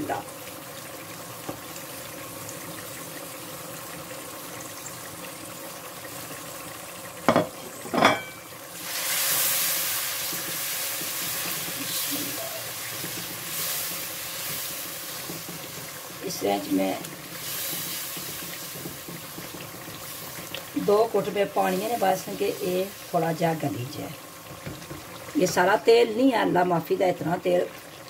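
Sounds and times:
onions sizzling in oil: 0.0s - 28.0s
spatula stirring sizzling spices: 7.6s - 26.1s.

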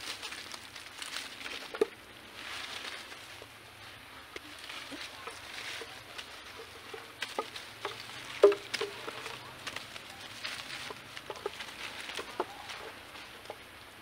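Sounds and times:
twigs snapping: 0.0s - 3.4s, 4.3s - 13.8s
dry leaves crackling and rustling: 0.0s - 14.0s.

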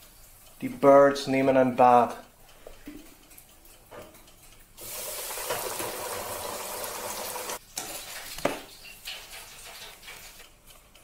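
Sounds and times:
oil sizzling and bubbling: 0.0s - 0.6s, 2.8s - 11.0s.

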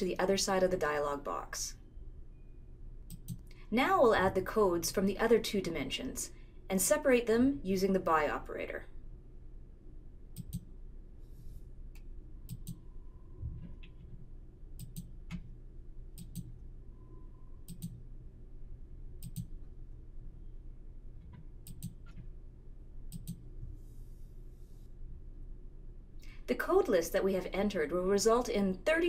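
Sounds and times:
faint low hum: 0.0s - 29.0s
computer mouse clicking: 3.1s - 3.4s, 10.4s - 10.7s, 12.0s - 12.8s, 14.8s - 15.5s, 16.2s - 16.5s, 17.7s - 18.0s, 19.2s - 19.5s, 21.3s - 22.2s, 23.1s - 23.4s.

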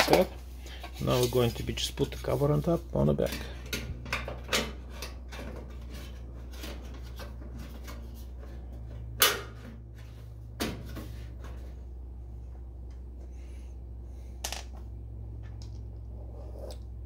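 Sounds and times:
steady low hum: 0.0s - 17.0s
light scrapes and clicks: 0.7s - 2.5s.

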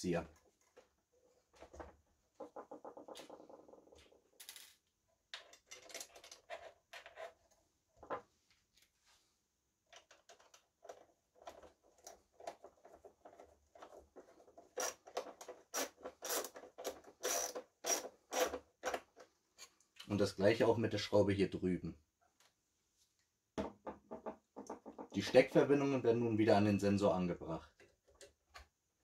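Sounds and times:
tool clicking and scraping on plastic: 9.9s - 19.8s
knock on plastic frame: 23.6s - 25.2s.

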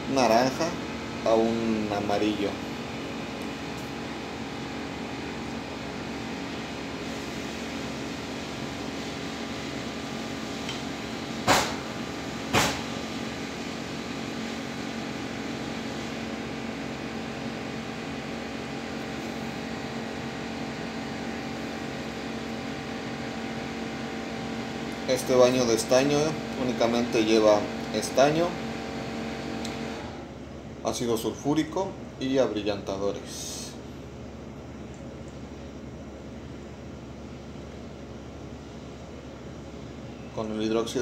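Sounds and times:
fan humming: 0.0s - 41.0s
sharp knocks: 11.4s - 11.8s, 12.5s - 12.9s.

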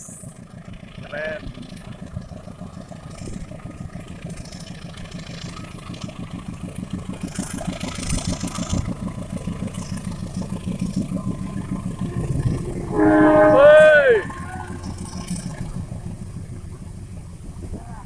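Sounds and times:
diesel locomotive engine throbbing: 0.0s - 18.0s
rush of noise: 11.3s - 16.7s.

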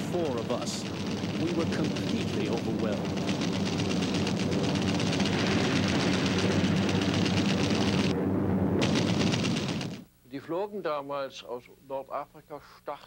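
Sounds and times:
piston engines droning: 0.0s - 10.0s.

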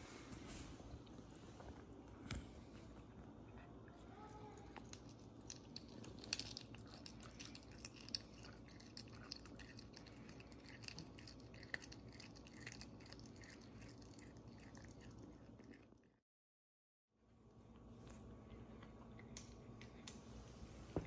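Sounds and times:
cat chewing wet smacking: 4.7s - 16.2s.

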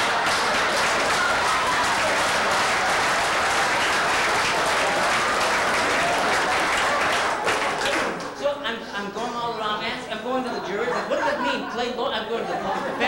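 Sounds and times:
audience clapping: 0.0s - 8.4s
audience laughing: 0.0s - 8.4s, 10.2s - 13.0s.

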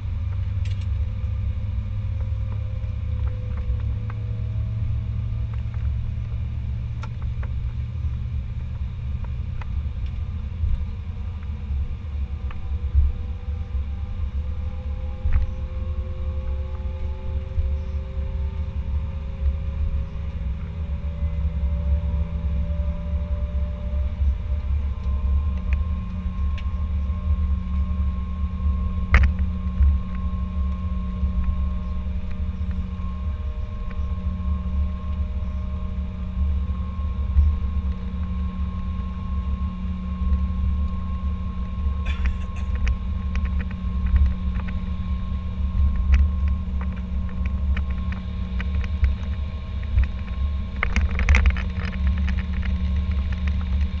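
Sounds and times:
airplane cabin rumble: 0.0s - 54.0s
engine whine tones: 0.0s - 54.0s
light clicks or rattles: 45.8s - 54.0s.

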